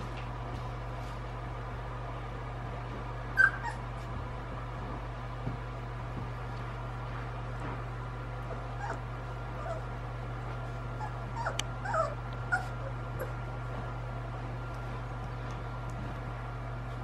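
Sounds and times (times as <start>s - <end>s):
steady low hum: 0.0s - 17.0s
puppies whimpering and yipping: 3.4s - 3.9s, 8.8s - 9.9s, 11.0s - 13.4s.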